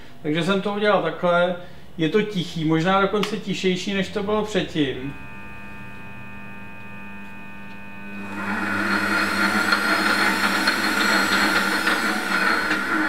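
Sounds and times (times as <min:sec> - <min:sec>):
bench lathe motor whining: 0:04.9 - 0:13.0.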